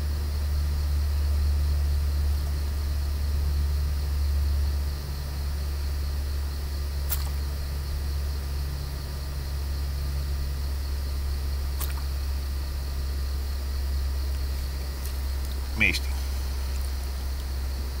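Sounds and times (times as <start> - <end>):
sharp high click: 7.1 - 7.4
steady low drone: 10.0 - 18.0.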